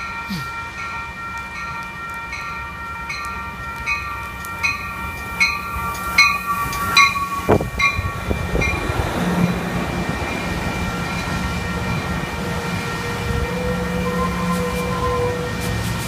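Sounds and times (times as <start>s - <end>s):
warning bell ringing: 0.0s - 15.6s
train wheels rumbling: 0.0s - 16.0s.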